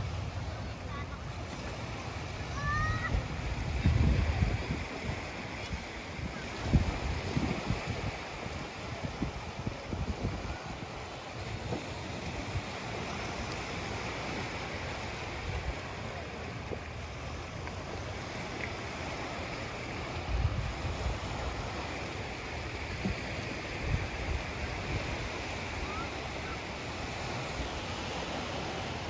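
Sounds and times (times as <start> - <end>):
small waves lapping on shore: 0.0 - 29.0
wind buffeting microphone: 2.3 - 18.2, 19.0 - 26.2.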